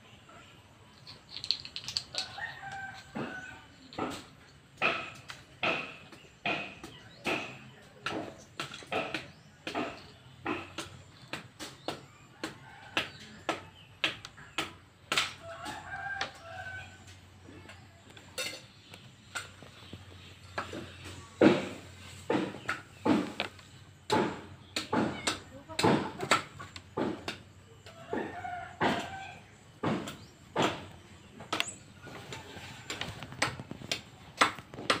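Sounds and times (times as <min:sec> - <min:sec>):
plastic pieces clacking on concrete: 0:00.9 - 0:03.1
rooster crowing: 0:02.1 - 0:03.7, 0:15.4 - 0:17.2, 0:27.8 - 0:30.0.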